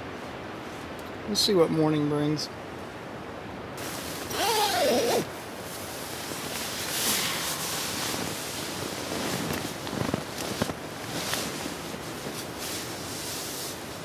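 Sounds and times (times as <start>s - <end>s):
wind rushing: 6.0s - 12.0s
handling rustles and clicks: 9.1s - 12.6s.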